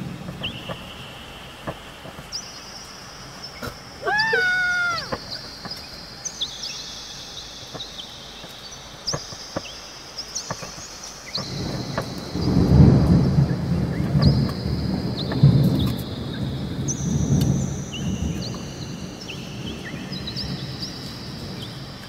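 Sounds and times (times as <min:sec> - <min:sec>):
drawn-out animal cry: 0:04.0 - 0:05.2
low thunder rumble: 0:11.3 - 0:22.0.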